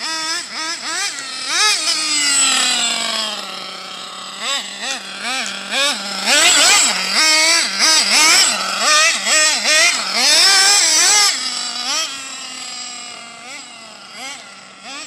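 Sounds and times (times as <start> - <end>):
rc car engine revving: 0.0 - 15.0.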